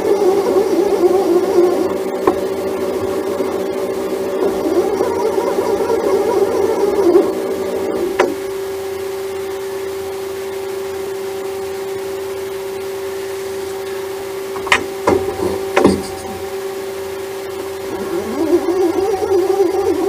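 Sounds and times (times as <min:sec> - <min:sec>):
lathe humming: 0:12.6 - 0:20.0
sharp knocks: 0:14.6 - 0:16.5.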